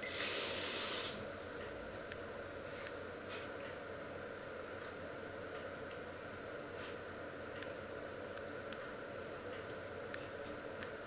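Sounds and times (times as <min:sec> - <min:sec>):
water sizzling on hot lid: 0:00.0 - 0:01.1
steady cooking hiss: 0:00.0 - 0:01.5, 0:02.3 - 0:05.3.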